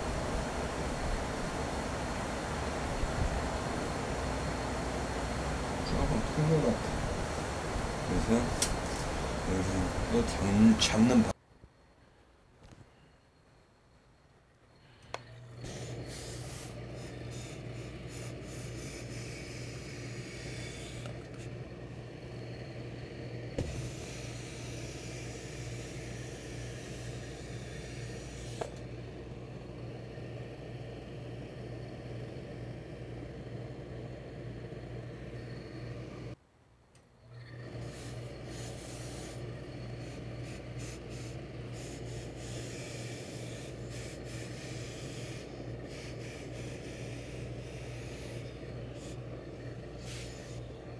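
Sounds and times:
steam iron hissing: 0.0 - 11.3, 15.2 - 29.0, 37.6 - 50.9
electric hum: 0.0 - 11.4, 14.6 - 36.4, 37.0 - 50.9.

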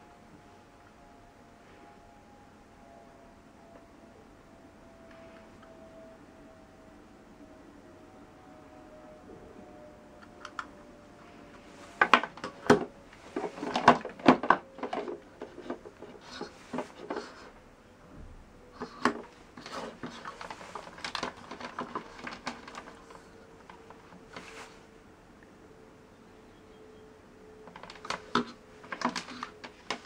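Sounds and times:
plastic plugs clicking into power strip: 10.2 - 10.7
cables and adapters clattering: 10.2 - 17.6, 18.6 - 24.6, 27.6 - 30.0.

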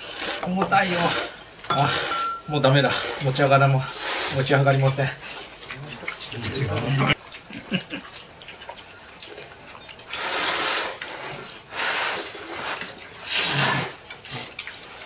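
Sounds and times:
person slurping noodles: 0.0 - 2.2, 10.2 - 14.4.

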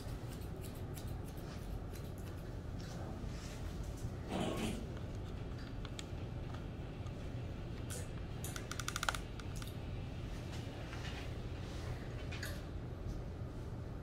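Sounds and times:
shears snipping hair: 0.0 - 2.9
steady low hum: 0.0 - 14.0.

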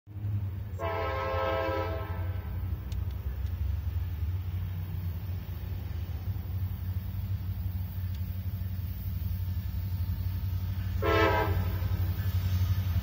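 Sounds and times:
locomotive air horn: 0.7 - 2.5, 10.9 - 12.1.

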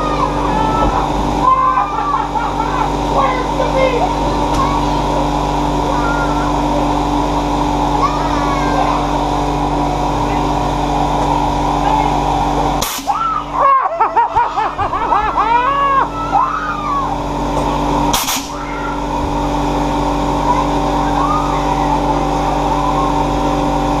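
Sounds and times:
machinery hum: 0.0 - 24.0
air cannon blast: 12.8 - 13.2, 18.1 - 18.6
person screaming: 15.4 - 17.2.

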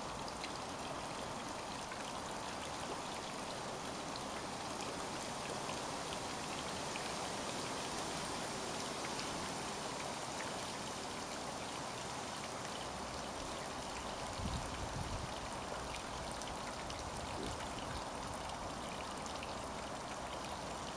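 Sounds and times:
water pattering and trickling: 9.9 - 20.9.

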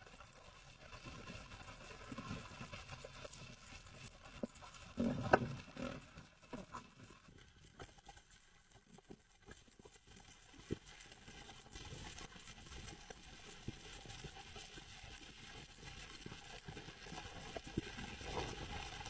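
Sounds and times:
underwater clicks and knocks: 5.0 - 7.0.

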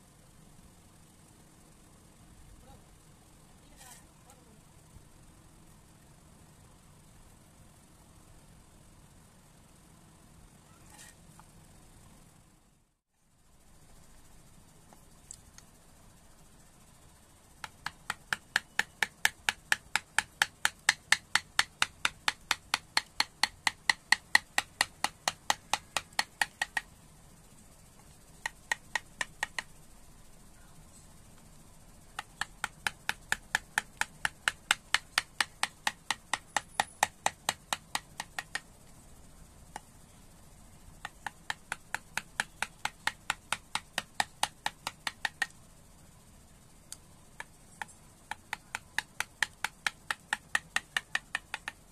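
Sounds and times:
mallet tapping wood chisel: 17.6 - 26.9, 28.4 - 29.8, 32.2 - 38.6, 41.0 - 45.5, 47.4 - 51.9.

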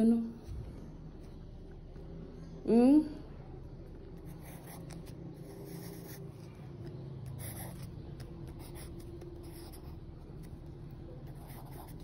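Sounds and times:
faint low hum: 0.0 - 12.0
pencil scratching on paper: 4.2 - 12.0.

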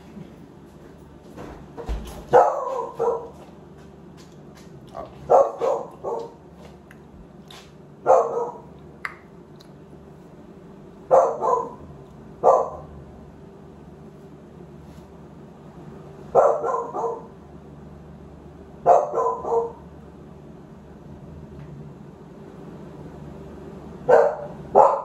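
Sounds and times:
dog barking: 2.3 - 3.4, 5.2 - 6.4, 8.0 - 8.7, 11.1 - 12.9, 16.3 - 17.3, 18.8 - 19.8, 24.1 - 25.0.

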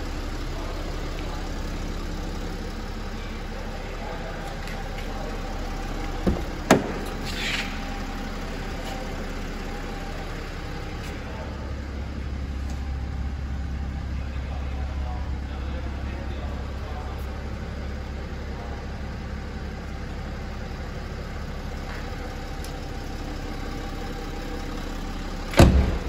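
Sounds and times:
diesel car engine idling: 0.0 - 26.0
car door opening clacks: 6.2 - 7.8.

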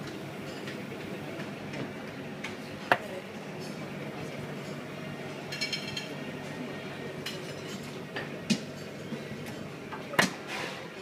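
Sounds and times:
dishes and glassware clinking: 5.5 - 6.2, 7.2 - 11.0.

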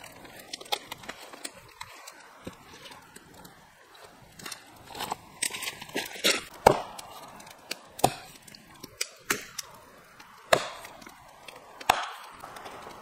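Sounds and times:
tool chopping wood: 6.5 - 7.1, 7.7 - 8.4, 10.5 - 11.1, 11.8 - 12.5.

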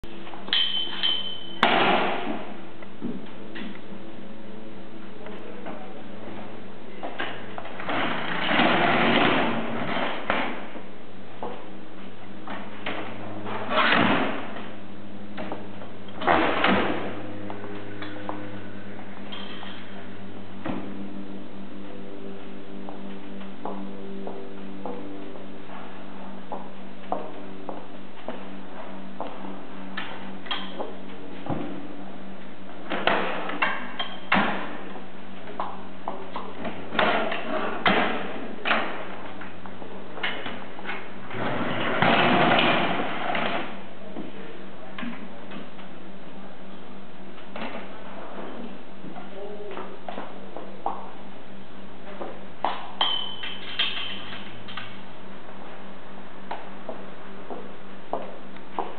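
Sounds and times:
steady low hum: 0.0 - 58.9
metal table legs clunking and rattling: 0.5 - 1.9.

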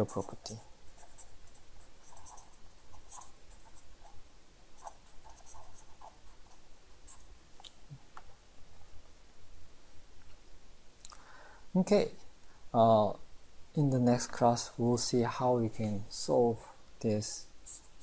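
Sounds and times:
low steady hum: 0.0 - 18.0
pen tapping and scratching: 4.8 - 7.3.

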